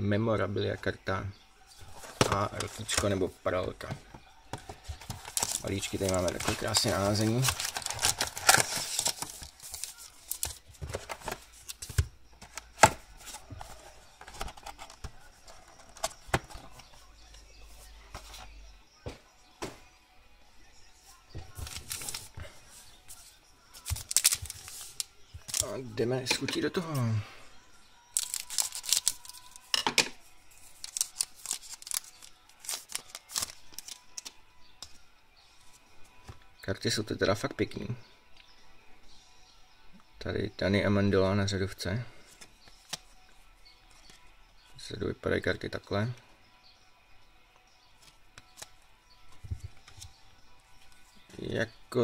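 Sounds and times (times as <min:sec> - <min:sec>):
cardboard box handling: 0:04.5 - 0:16.9
foil packs crinkling: 0:04.8 - 0:11.9, 0:23.8 - 0:25.8, 0:28.1 - 0:29.6, 0:30.8 - 0:34.3.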